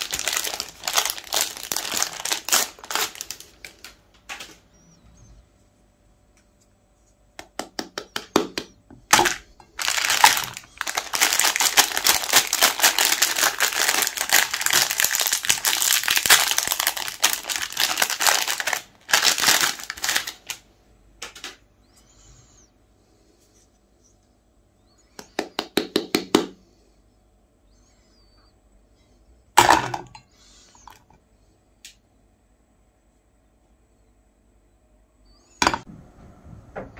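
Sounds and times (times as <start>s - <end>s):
wrapper crinkling: 0.0s - 4.6s, 9.1s - 21.6s.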